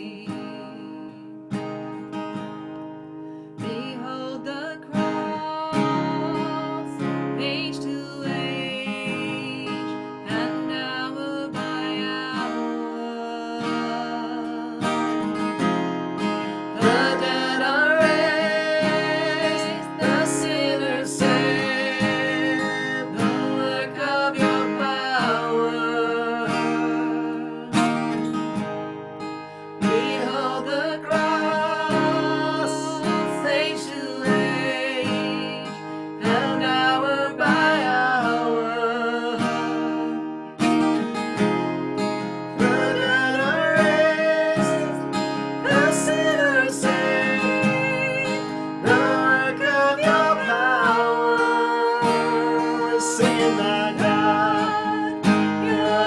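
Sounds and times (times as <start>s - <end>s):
man and woman singing: 0.0s - 1.4s, 3.6s - 15.4s, 16.5s - 28.0s, 29.8s - 40.0s, 42.5s - 56.0s
strummed acoustic guitar: 0.0s - 56.0s.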